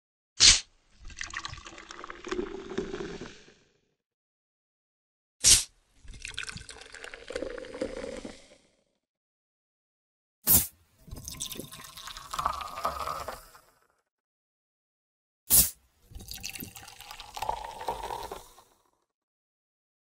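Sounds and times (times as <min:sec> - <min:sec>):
soda bottle opening pop and hiss: 0:00.4 - 0:00.7, 0:05.4 - 0:05.7, 0:10.5 - 0:10.8, 0:15.5 - 0:15.8
soda fizzing and pouring: 0:01.0 - 0:03.4, 0:06.1 - 0:08.6, 0:11.1 - 0:13.7, 0:15.6 - 0:18.8.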